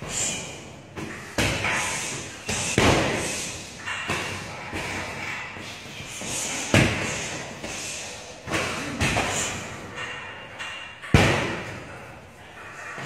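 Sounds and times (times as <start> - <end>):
punching bag thuds echoing: 1.0 - 5.3, 6.6 - 7.6, 11.0 - 12.0.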